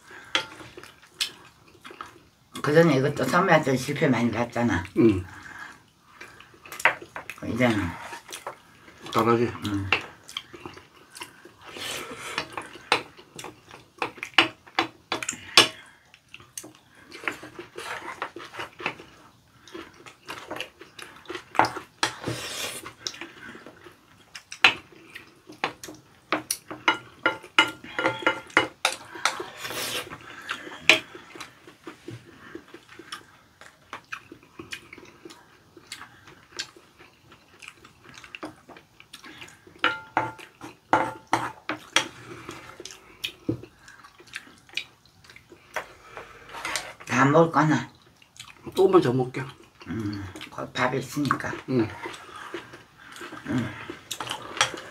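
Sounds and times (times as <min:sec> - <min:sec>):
chewing and mouth sounds: 0:00.2 - 0:02.3, 0:08.1 - 0:39.8, 0:41.5 - 0:46.4, 0:47.9 - 0:54.9
utensils clinking on ceramic bowls: 0:26.8 - 0:29.4, 0:39.8 - 0:41.6.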